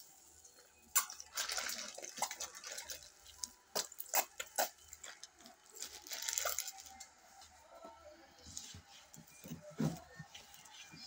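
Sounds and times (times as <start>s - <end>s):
liquid pouring into metal bowl: 0.9s - 3.4s.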